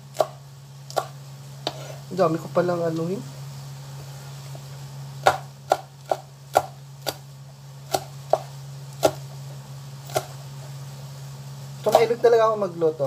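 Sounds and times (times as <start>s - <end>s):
steady low hum: 0.0s - 13.0s
knife chopping on cutting board: 0.2s - 1.9s, 5.2s - 7.2s, 7.9s - 9.3s, 10.0s - 10.4s.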